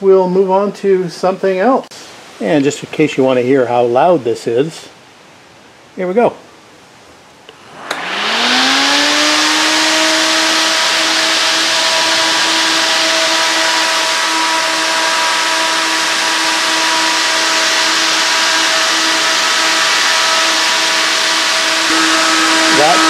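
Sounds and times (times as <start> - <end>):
motor hum: 7.5 - 23.0
rush of air from fan: 7.6 - 23.0.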